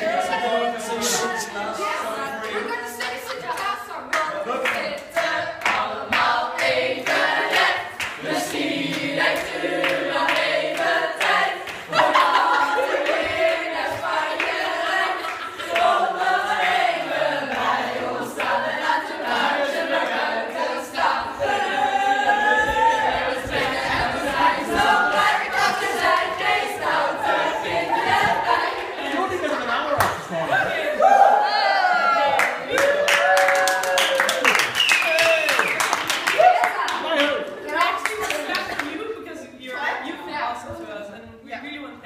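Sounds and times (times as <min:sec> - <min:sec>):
group singing unaccompanied: 0:00.0 - 0:31.0.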